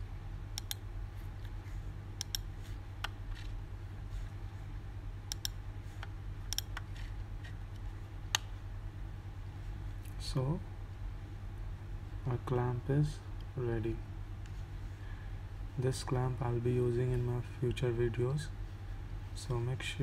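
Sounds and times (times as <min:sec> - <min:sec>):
steady low hum: 0:00.0 - 0:20.0
computer mouse clicking: 0:00.6 - 0:00.8, 0:02.2 - 0:03.5, 0:05.3 - 0:08.5.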